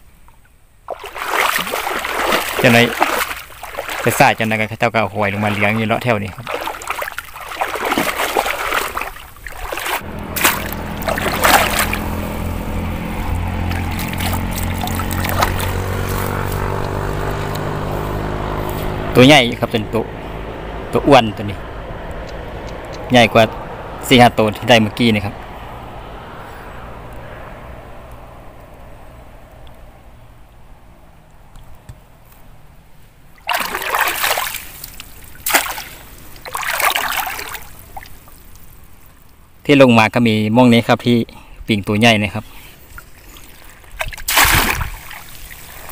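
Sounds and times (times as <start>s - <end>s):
water splashing and sloshing: 0.0s - 20.7s, 33.0s - 39.6s, 42.6s - 45.9s
vehicle engine humming: 5.3s - 33.9s.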